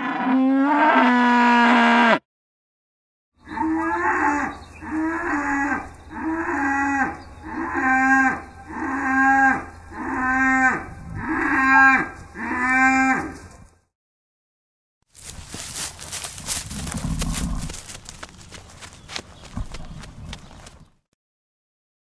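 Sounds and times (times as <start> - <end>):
cow mooing: 0.0 - 2.2, 3.4 - 13.4.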